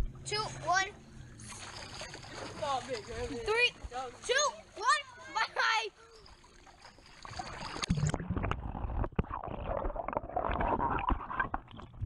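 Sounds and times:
underwater bubbling: 0:06.2 - 0:12.0
underwater knocks and thumps: 0:07.6 - 0:12.0.

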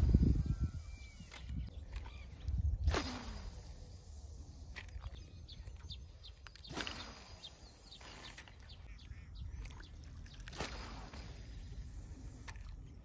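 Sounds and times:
wind rumbling on microphone: 0:00.0 - 0:03.7
faint bird chirps: 0:00.0 - 0:13.0.

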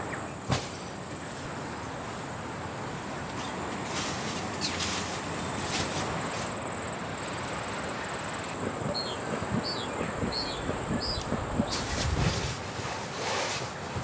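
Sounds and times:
wind: 0:00.0 - 0:14.0
soft low bumps: 0:08.6 - 0:12.6.

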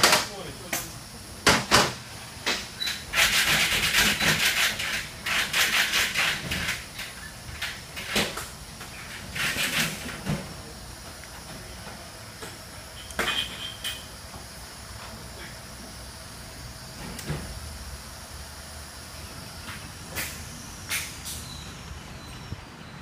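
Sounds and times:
compressed air hissing: 0:12.7 - 0:22.6.

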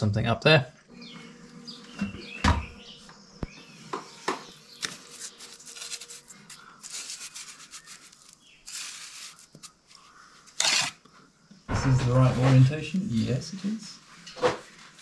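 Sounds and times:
trowel scraping stone: 0:05.0 - 0:09.7, 0:10.6 - 0:11.0.

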